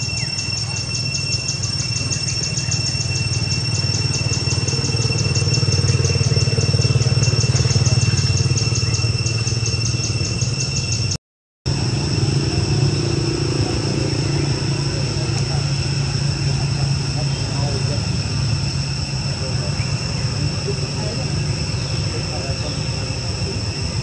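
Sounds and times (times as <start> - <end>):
high pulsing buzz: 0.0 - 24.0
motor running: 1.6 - 11.0.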